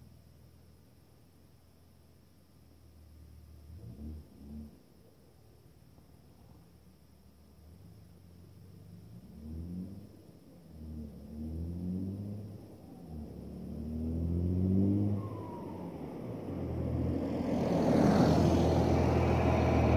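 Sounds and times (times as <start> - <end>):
car engine accelerating: 9.0 - 19.9.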